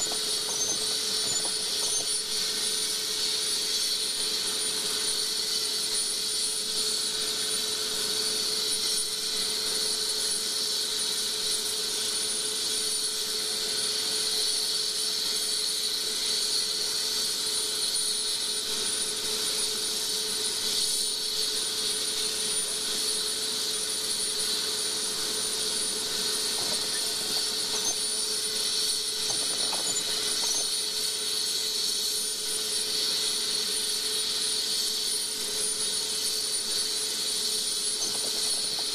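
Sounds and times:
high-pitched whine: 0:00.0 - 0:03.0, 0:24.1 - 0:30.9, 0:35.6 - 0:38.9
steady engine noise: 0:00.0 - 0:03.2, 0:23.7 - 0:30.9, 0:37.7 - 0:38.9.

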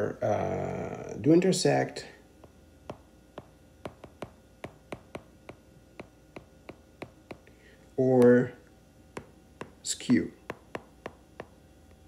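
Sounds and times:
stylus tapping on glass screen: 0:02.4 - 0:08.5, 0:09.2 - 0:11.6.

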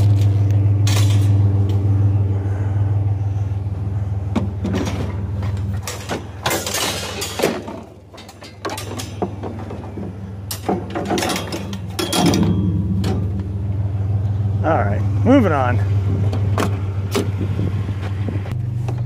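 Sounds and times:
scrap metal rattling and clanking: 0:00.0 - 0:01.8, 0:03.8 - 0:14.4
idling engine hum: 0:00.0 - 0:19.0.

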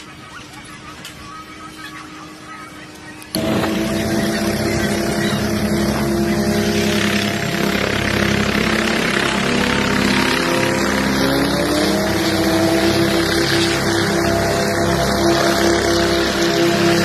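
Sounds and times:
helicopter engine and rotor: 0:00.0 - 0:17.0.

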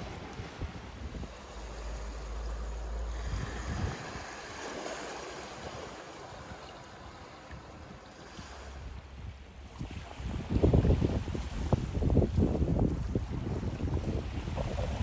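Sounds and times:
small waves washing onto sand: 0:00.0 - 0:15.0
wind rumble on microphone: 0:00.0 - 0:15.0.

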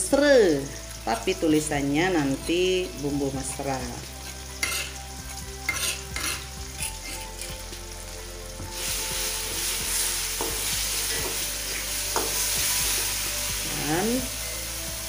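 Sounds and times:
paste sizzling in hot oil: 0:00.0 - 0:15.0
spatula stirring and scraping: 0:04.6 - 0:07.8.

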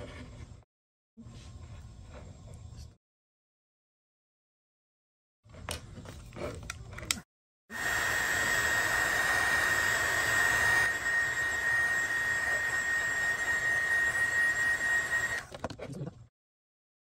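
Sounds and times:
heat gun blowing with whine: 0:07.7 - 0:15.5.

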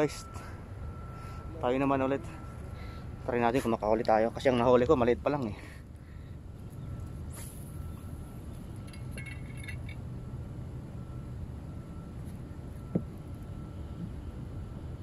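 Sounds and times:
low outdoor rumble: 0:00.0 - 0:15.0
faint metallic clinks: 0:08.0 - 0:10.0.

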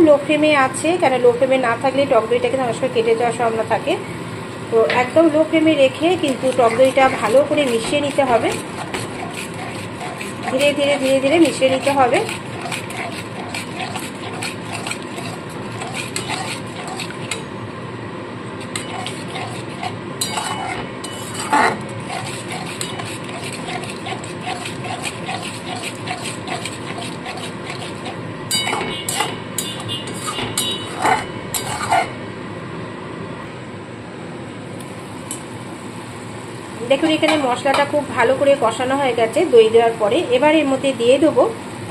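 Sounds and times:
metal spatula scraping a pan: 0:06.2 - 0:17.5, 0:18.6 - 0:32.1
spatula clanking against pan: 0:06.3 - 0:17.5, 0:18.6 - 0:32.1, 0:37.0 - 0:37.9.

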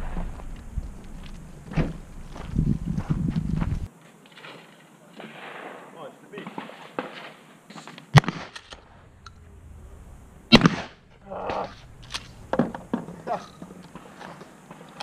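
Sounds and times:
shotgun shots with echo: 0:10.5 - 0:11.0.

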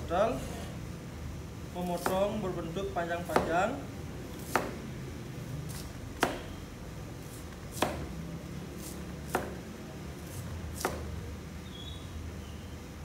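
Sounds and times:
cleaver knocking on cutting board: 0:03.3 - 0:03.6, 0:04.5 - 0:04.8, 0:06.2 - 0:06.5, 0:09.3 - 0:09.6.

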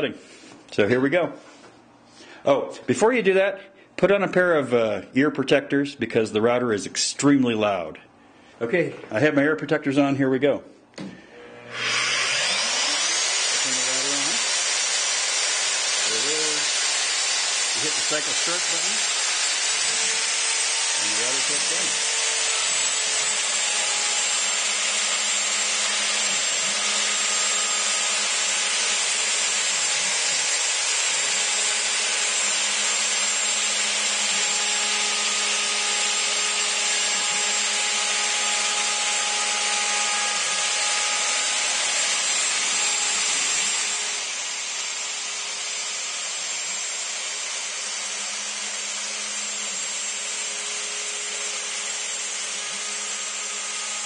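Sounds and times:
wood router whining: 0:11.0 - 0:54.0.

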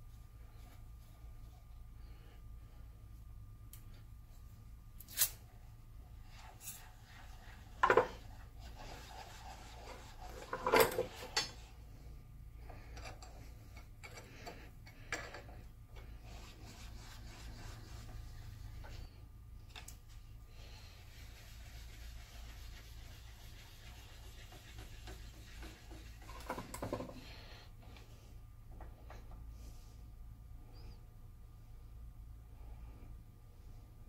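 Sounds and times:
metal sliding and rubbing: 0:06.3 - 0:11.7, 0:21.0 - 0:27.4.

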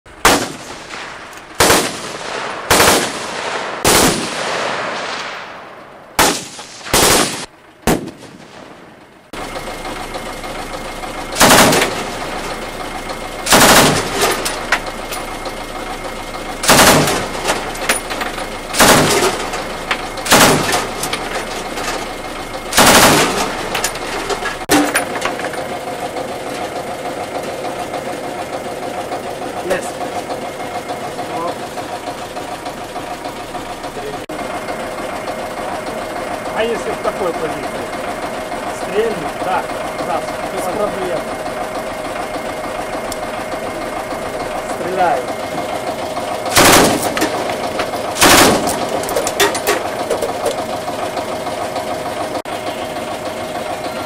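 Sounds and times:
steady engine hum: 0:00.1 - 0:54.0
machine gun shots: 0:00.2 - 0:08.9, 0:11.4 - 0:12.2, 0:13.4 - 0:14.5, 0:16.6 - 0:17.8, 0:18.7 - 0:19.6, 0:20.2 - 0:21.1, 0:22.7 - 0:23.8, 0:46.5 - 0:49.7
rifle shots: 0:00.2 - 0:09.0, 0:11.4 - 0:12.0, 0:13.4 - 0:14.4, 0:16.6 - 0:17.5, 0:18.7 - 0:19.5, 0:20.2 - 0:21.1, 0:22.7 - 0:23.6, 0:46.5 - 0:47.5, 0:48.1 - 0:49.0.

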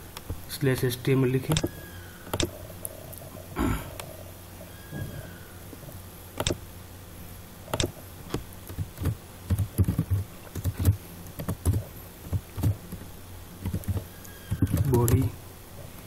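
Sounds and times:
keyboard typing: 0:02.3 - 0:02.5, 0:07.7 - 0:07.9, 0:08.7 - 0:12.8, 0:13.6 - 0:15.3
mouse clicks: 0:07.7 - 0:07.9.

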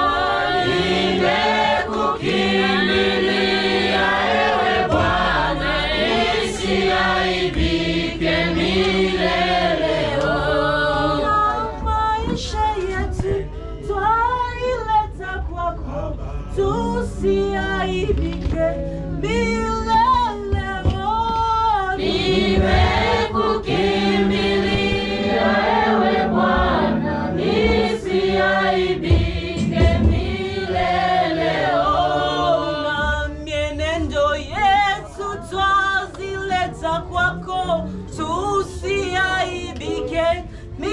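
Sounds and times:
choir singing gospel song: 0:00.0 - 0:14.3, 0:20.0 - 0:40.9
steady low bass: 0:00.0 - 0:32.0.

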